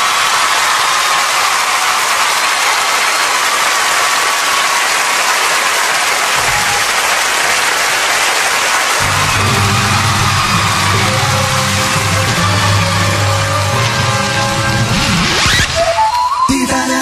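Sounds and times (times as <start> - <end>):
audience cheering and applauding: 0.0 - 16.6.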